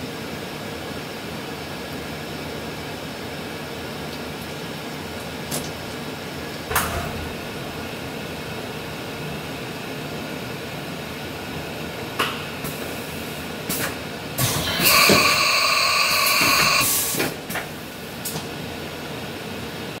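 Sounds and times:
machining centre hissing: 12.6s - 18.2s
compressed air blast whistling: 14.4s - 17.2s.

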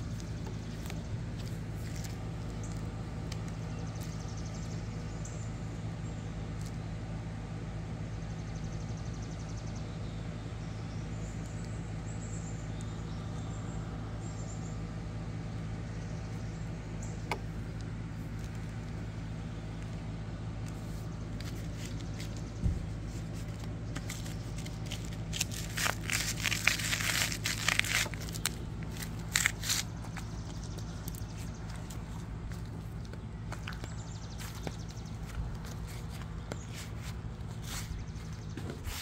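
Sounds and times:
flip-flops scuffing on concrete: 0.0s - 4.1s, 20.7s - 39.0s
steady low hum: 0.0s - 39.0s
crinkly scrapes: 20.8s - 30.2s.

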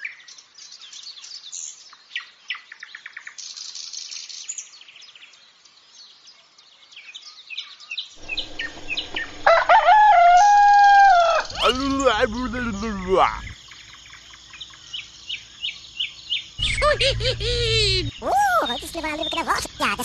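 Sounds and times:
songbirds chirping and trilling: 0.2s - 17.4s
steady background hum: 8.2s - 13.6s, 16.6s - 20.0s.

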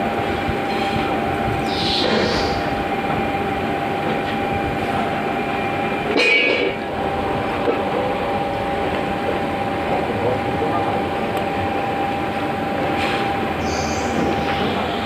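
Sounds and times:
constant hum: 0.0s - 15.0s
screw conveyor rumbling: 0.0s - 15.0s
high-pitched squeal: 1.6s - 3.0s.

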